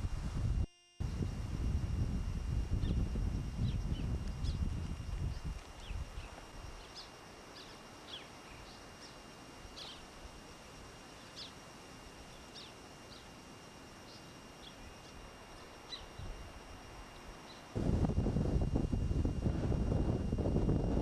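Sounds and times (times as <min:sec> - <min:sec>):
thin steady high tone: 0:00.4 - 0:21.0
faint bird chirps: 0:02.8 - 0:10.2, 0:11.1 - 0:11.6, 0:12.3 - 0:13.4, 0:14.0 - 0:16.4.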